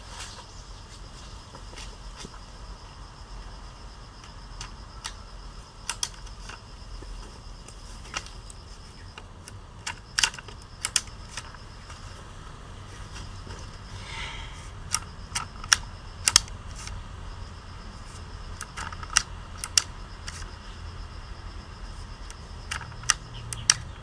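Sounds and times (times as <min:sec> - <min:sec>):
tape tool clicking and snapping: 0:05.8 - 0:06.6, 0:09.2 - 0:11.6, 0:14.9 - 0:17.0, 0:18.6 - 0:20.5, 0:22.7 - 0:23.9.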